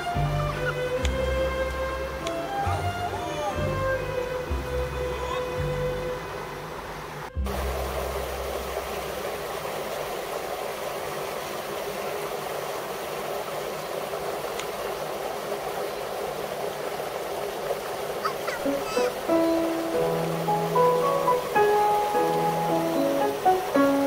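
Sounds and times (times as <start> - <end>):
low hum: 3.6 - 9.6
outdoor rushing hiss: 5.8 - 24.0.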